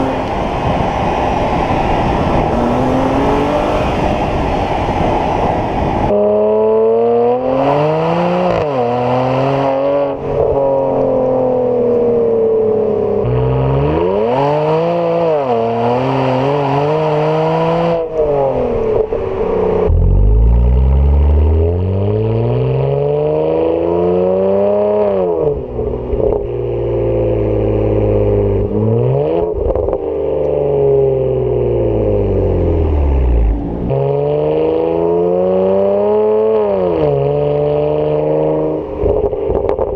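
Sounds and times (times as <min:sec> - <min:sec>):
car engine revving hard: 0:00.0 - 0:05.0, 0:06.2 - 0:10.9, 0:13.3 - 0:18.8, 0:30.2 - 0:38.9.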